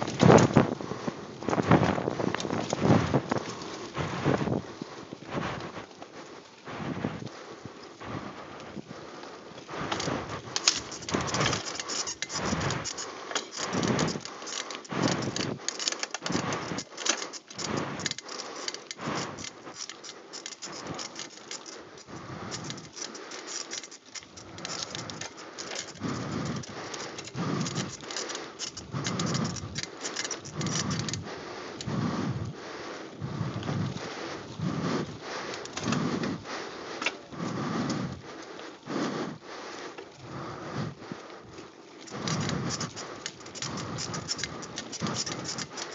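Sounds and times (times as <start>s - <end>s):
bike clattering and rattling: 0.0s - 6.2s, 7.8s - 32.0s, 33.4s - 37.4s, 41.4s - 45.9s
tyre noise: 0.0s - 8.8s, 9.6s - 32.4s
wind buffeting microphone: 0.0s - 13.0s, 13.6s - 16.9s, 24.4s - 36.5s.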